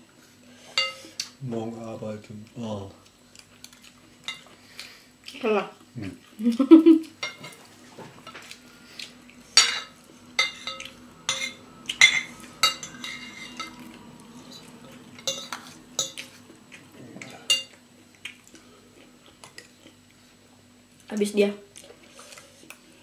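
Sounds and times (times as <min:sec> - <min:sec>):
faint steady hum: 0:00.0 - 0:23.0
cutlery clinking on ceramic bowl: 0:07.2 - 0:07.6, 0:09.6 - 0:13.9, 0:14.5 - 0:16.3.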